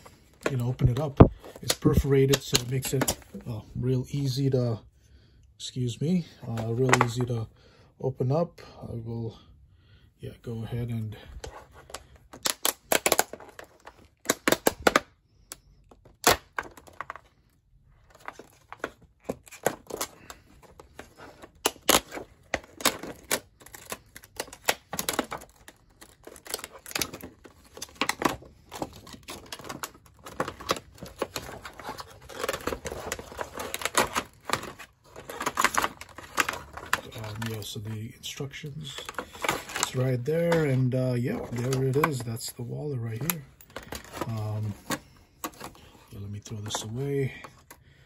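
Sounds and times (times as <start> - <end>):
plastic packaging crackling: 6.5 - 7.3, 11.4 - 47.8
rustling handling: 15.8 - 47.8.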